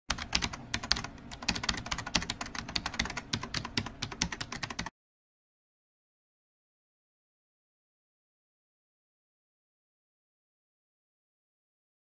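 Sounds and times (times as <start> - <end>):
keyboard typing clicks: 0.1 - 4.9.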